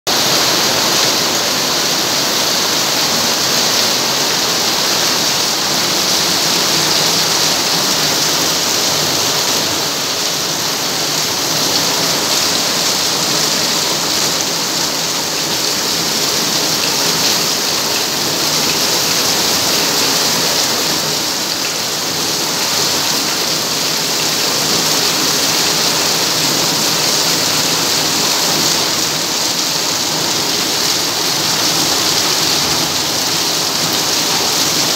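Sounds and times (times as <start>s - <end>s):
heavy rain on hard ground: 0.1s - 34.9s.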